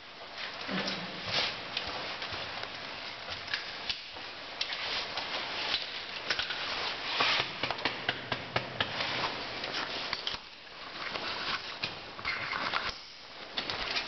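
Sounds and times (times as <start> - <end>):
steady hiss: 8.9 - 14.0.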